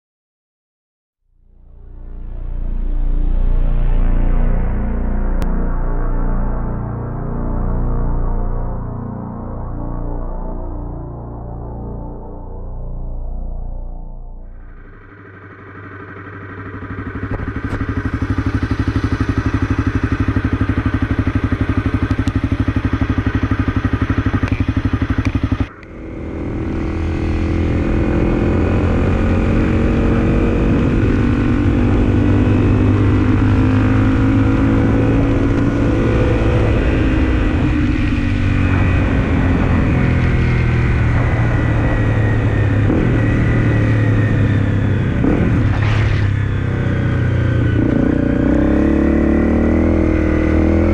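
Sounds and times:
motorcycle engine idling: 14.6 - 29.4
motorcycle engine revving while riding: 16.0 - 50.9.

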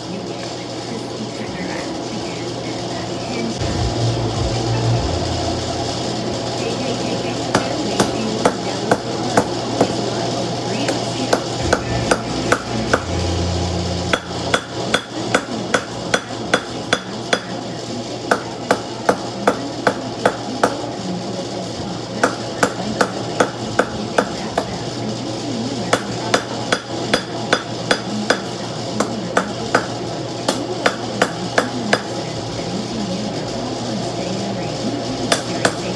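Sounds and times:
hammer striking hot steel on anvil: 7.5 - 10.0, 10.8 - 17.6, 18.3 - 20.8, 22.2 - 24.7, 25.9 - 32.2, 35.3 - 35.9.

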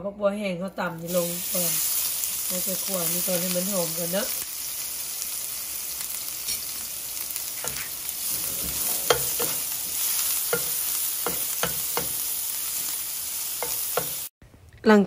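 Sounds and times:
shallot and garlic sizzling in oil: 0.8 - 14.4
metal spoon scraping a pan: 6.4 - 6.8, 7.5 - 14.3.

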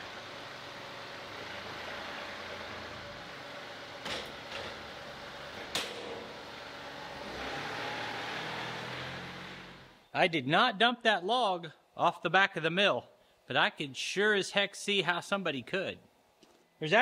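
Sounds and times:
diesel loader engine running: 0.0 - 10.0.

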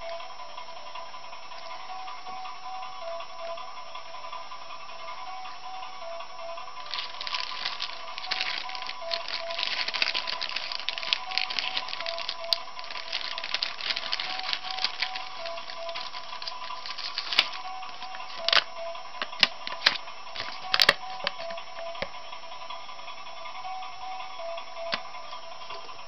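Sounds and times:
background music melody: 0.0 - 26.0
plastic bag crinkling: 6.8 - 21.5.

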